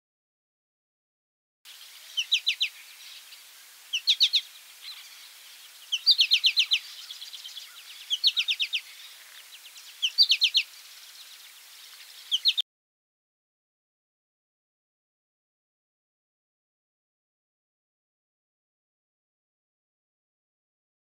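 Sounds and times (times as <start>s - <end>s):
faint background hiss: 1.7s - 12.6s
finch calling: 1.8s - 12.6s.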